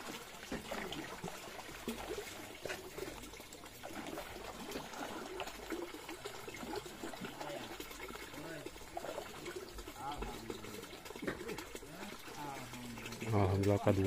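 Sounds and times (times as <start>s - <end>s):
water trickling: 0.0s - 14.0s.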